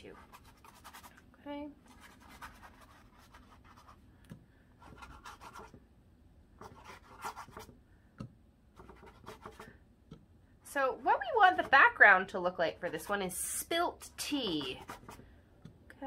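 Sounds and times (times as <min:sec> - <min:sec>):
paintbrush scratching on canvas: 0:00.0 - 0:01.2, 0:01.8 - 0:04.0, 0:04.8 - 0:05.8, 0:06.6 - 0:07.7, 0:08.8 - 0:09.7, 0:14.4 - 0:15.2.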